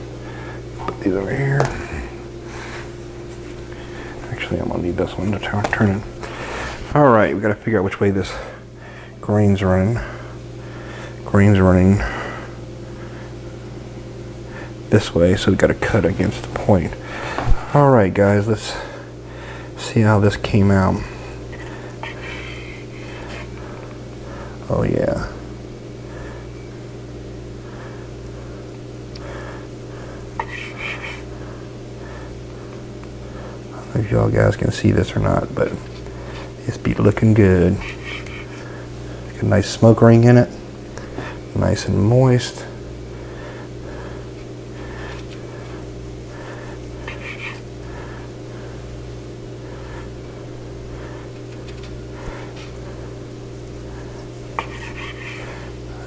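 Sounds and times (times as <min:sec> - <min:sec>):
steady low hum: 0:00.0 - 0:56.0
knife sawing through meat: 0:30.4 - 0:31.3, 0:37.6 - 0:38.7, 0:47.0 - 0:47.7, 0:54.6 - 0:55.7
knife scrape: 0:30.4 - 0:31.3, 0:37.8 - 0:38.7, 0:47.0 - 0:47.7, 0:54.6 - 0:55.6.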